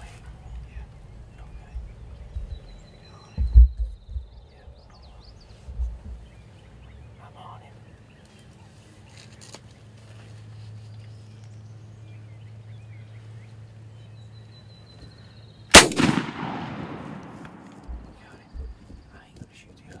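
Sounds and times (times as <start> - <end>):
faint birdsong: 0.0 - 20.0
shotgun blast with echo: 15.7 - 18.2.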